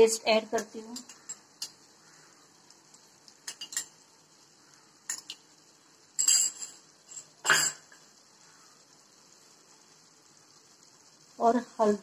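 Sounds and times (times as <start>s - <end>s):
utensils clinking against pan: 0.9s - 1.8s, 3.4s - 4.0s, 5.1s - 5.4s, 6.2s - 8.0s.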